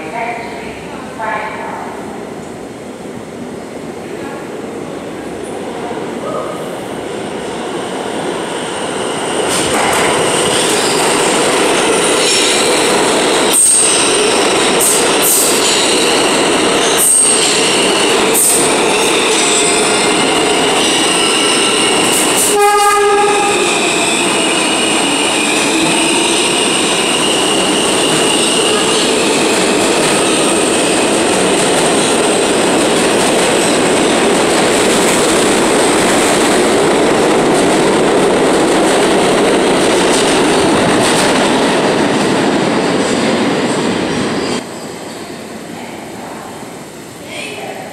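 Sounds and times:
train wheels rumbling on rail: 6.2 - 47.9
train horn blast: 22.4 - 23.7.

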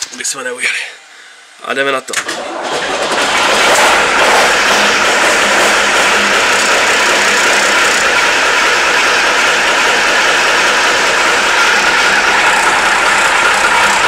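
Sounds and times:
diesel truck engine running: 2.8 - 14.0.

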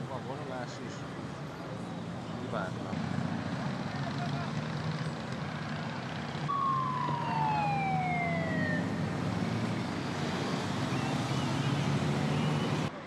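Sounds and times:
motorcycles riding past: 2.9 - 12.9
siren sliding down in pitch: 6.5 - 10.0.

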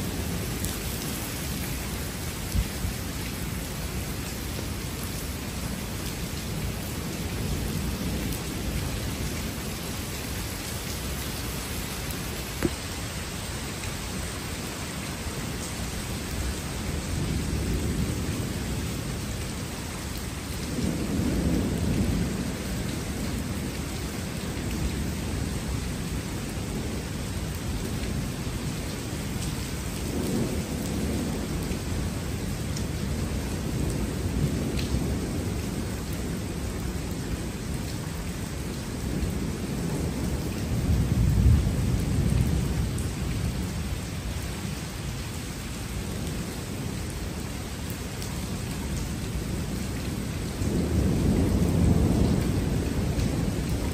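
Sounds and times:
steady rain: 0.0 - 53.9
thunder rumbling: 49.4 - 53.9.

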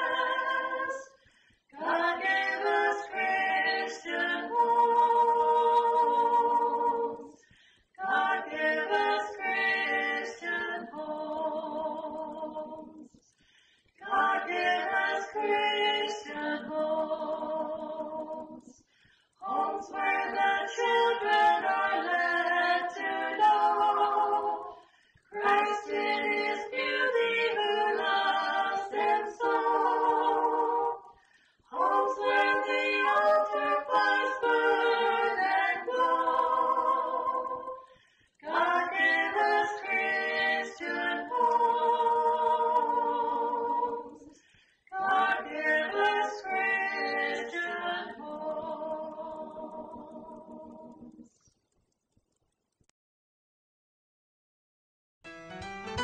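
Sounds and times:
choir singing a hymn: 0.0 - 13.1, 14.0 - 18.8, 19.4 - 51.2
singers breathing: 1.1 - 1.7, 7.3 - 8.0, 13.3 - 14.0, 18.8 - 19.4, 24.7 - 25.3, 31.1 - 31.7, 37.8 - 38.4, 44.3 - 44.9.

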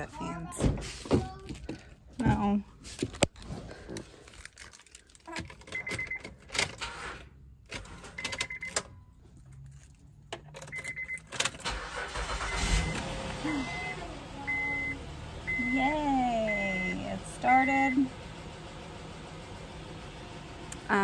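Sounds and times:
car keys jangling: 4.4 - 12.4
dashboard chime beeps: 12.5 - 16.6.

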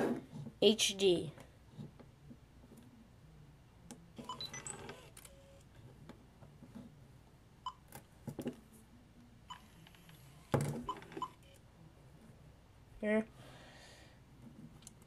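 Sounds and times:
zoom lens whirring: 4.2 - 5.7, 9.5 - 11.6.

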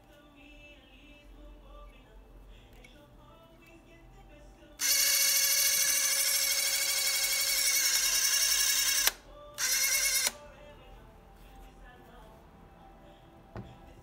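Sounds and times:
movie camera motor whirring: 4.8 - 10.4.

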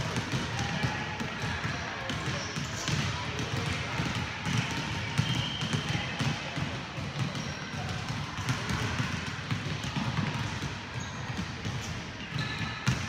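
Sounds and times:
basketballs bouncing on wooden floor: 0.0 - 13.0.

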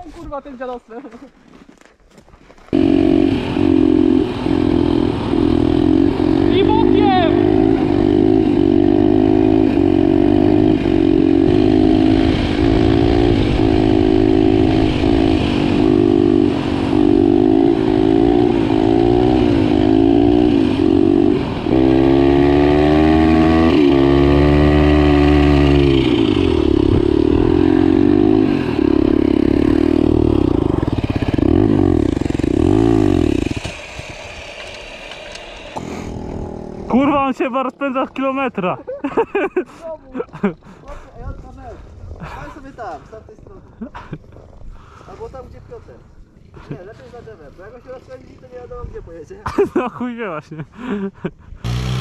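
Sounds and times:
motorbike engine revving hard: 2.7 - 37.3, 51.6 - 52.0.

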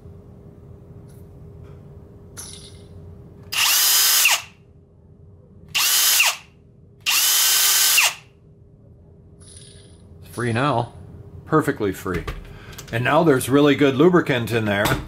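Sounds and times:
cordless drill motor whine: 3.5 - 4.5, 5.7 - 6.4, 7.0 - 8.2.

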